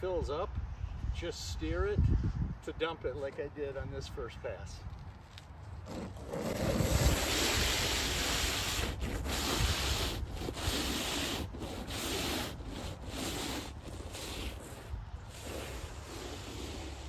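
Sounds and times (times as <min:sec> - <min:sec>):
snow pusher scraping asphalt: 0:05.8 - 0:17.0.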